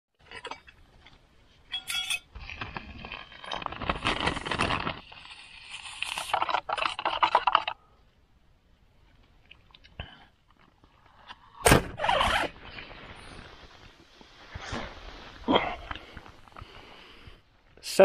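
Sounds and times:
metal spoon clinking on mug: 1.7s - 2.3s
plastic bag crinkling: 2.4s - 7.8s.

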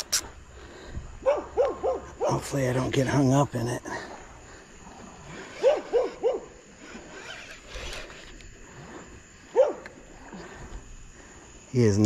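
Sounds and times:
dog barking: 1.2s - 2.4s, 5.6s - 6.5s, 9.5s - 9.9s.

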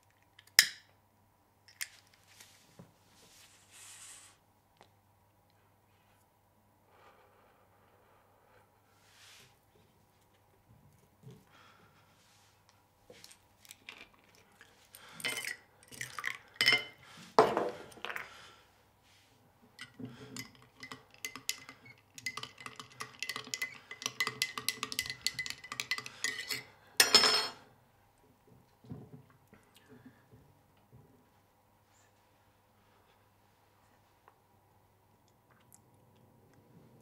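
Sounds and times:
spoon clinking in glass: 16.6s - 17.0s, 19.8s - 27.6s.

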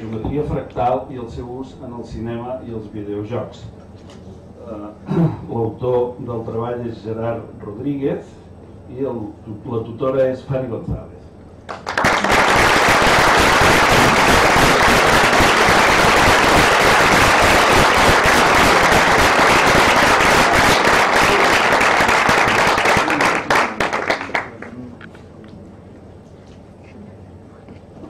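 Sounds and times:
audience applauding: 11.7s - 24.8s.

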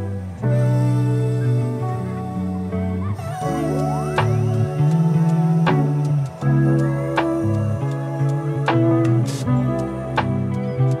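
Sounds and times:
gentle instrumental music: 0.0s - 11.0s.

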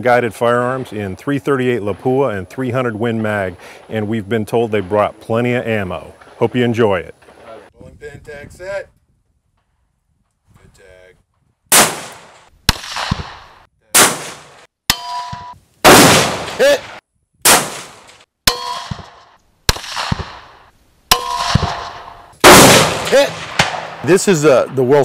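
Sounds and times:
rifle shots echoing: 11.7s - 25.0s
bullets clanging on steel: 18.0s - 20.4s, 21.1s - 22.4s.

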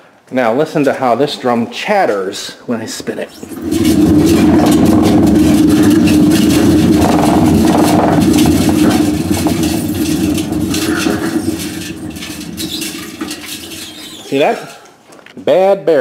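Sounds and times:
washer drum rumbling on worn bearings: 3.3s - 14.8s.

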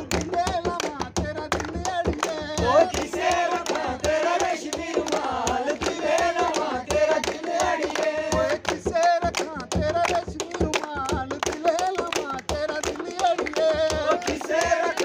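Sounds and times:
man singing a folk song: 0.0s - 3.0s, 8.3s - 14.8s.

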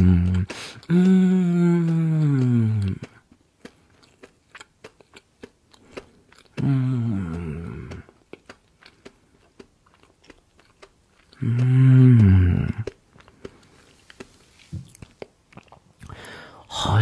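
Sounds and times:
person humming mmm: 0.0s - 3.2s, 6.5s - 8.2s, 11.3s - 13.0s
chewing crunchy food: 0.0s - 16.8s.

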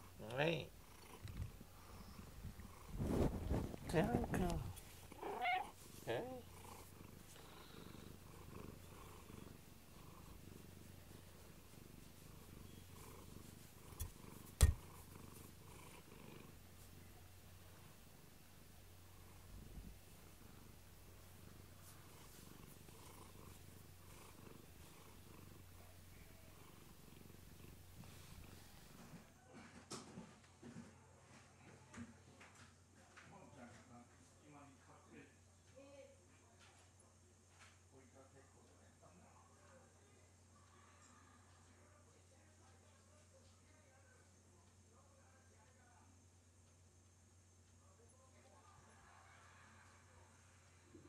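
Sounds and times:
cat purring: 0.0s - 30.8s.

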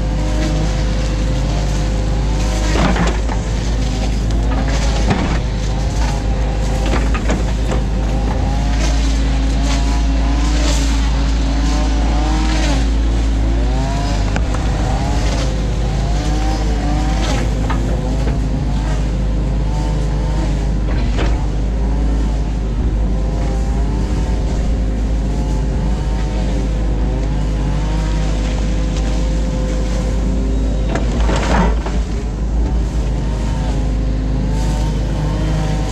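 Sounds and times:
diesel engine running under load: 0.0s - 35.9s
hydraulics whining: 0.0s - 35.9s
bucket knocking and scraping: 2.6s - 10.2s.

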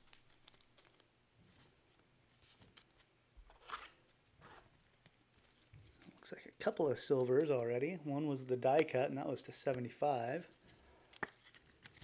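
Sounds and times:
trading cards rustling and clicking: 0.0s - 6.2s, 10.5s - 12.0s.

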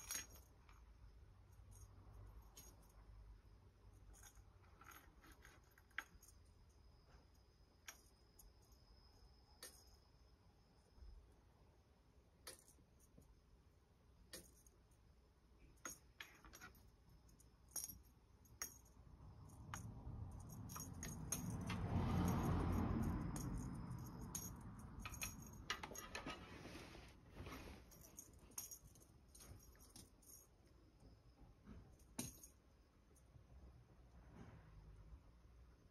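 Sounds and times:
cat toy clinking and jingling: 0.0s - 10.2s, 15.6s - 26.8s, 27.4s - 31.0s, 31.8s - 33.3s.

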